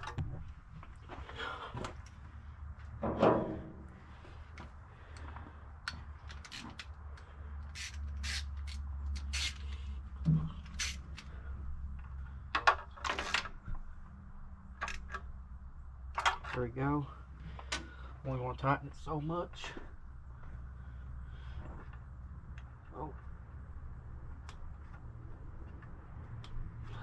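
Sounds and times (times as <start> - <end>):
metal clicks of hand tools: 5.2 - 9.8
steady low hum: 13.5 - 27.0.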